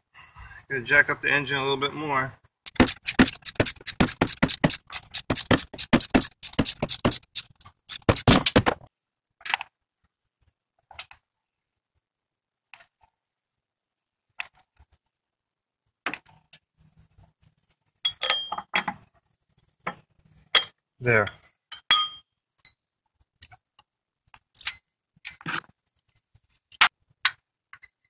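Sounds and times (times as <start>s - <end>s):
jack ratcheting clicks: 2.7s - 8.3s.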